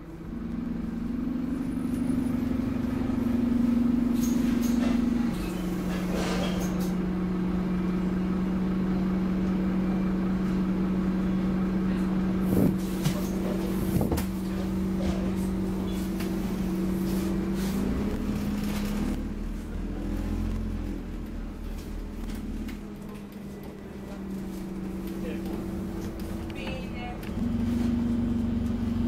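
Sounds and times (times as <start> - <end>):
bus engine humming: 0.0 - 29.0
knocks from bus body: 14.0 - 14.4.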